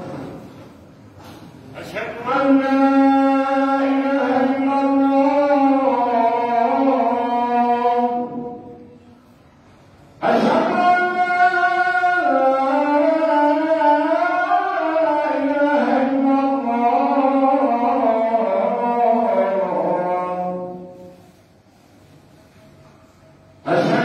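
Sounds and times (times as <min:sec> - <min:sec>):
man singing call to prayer: 0:01.7 - 0:09.0, 0:10.2 - 0:21.2, 0:23.6 - 0:24.0.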